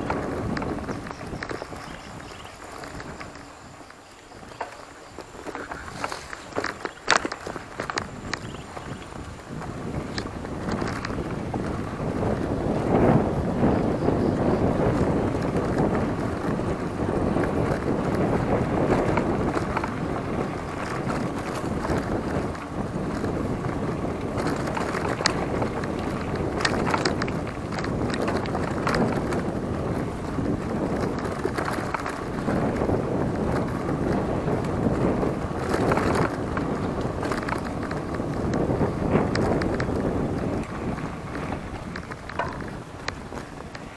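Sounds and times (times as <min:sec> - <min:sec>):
wind buffeting microphone: 0:00.0 - 0:43.9
sharp clicks or rattles: 0:41.9 - 0:43.9.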